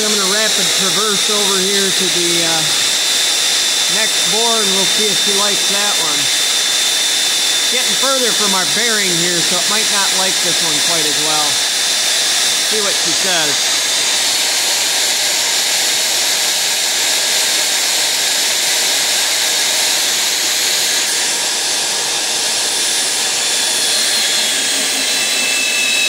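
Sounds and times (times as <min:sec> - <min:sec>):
thin high whine: 0:00.0 - 0:14.1
boring bar machining hiss: 0:00.0 - 0:14.8.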